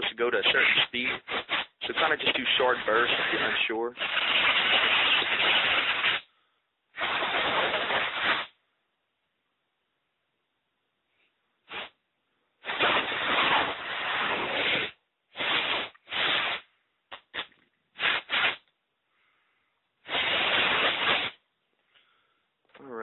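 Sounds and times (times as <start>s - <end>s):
compressed air spray hissing: 0.0s - 6.3s, 7.0s - 8.6s, 11.7s - 12.0s, 12.6s - 16.7s, 18.0s - 18.6s, 20.0s - 21.4s.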